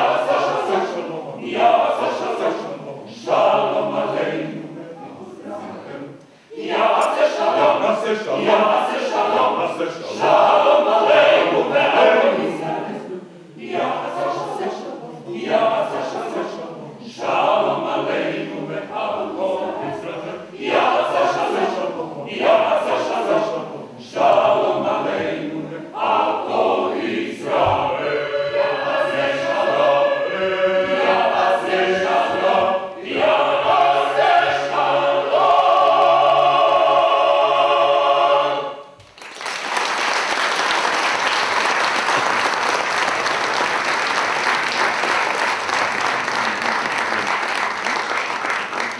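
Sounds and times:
mixed choir singing: 0.0 - 39.0
audience applauding: 39.0 - 48.9.

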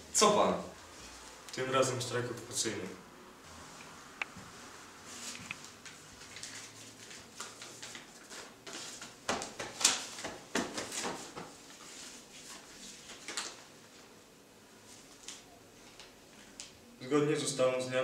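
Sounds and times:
paper rustling and crackling: 5.1 - 14.1.

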